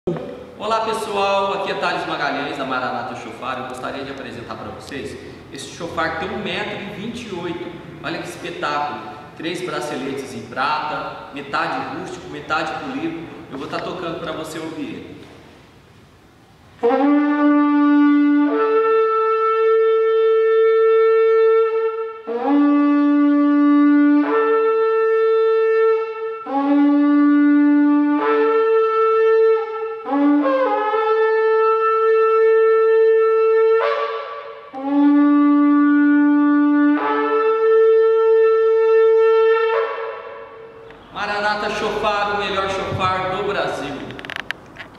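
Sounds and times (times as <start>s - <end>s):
shofar blowing long notes: 16.8s - 44.1s.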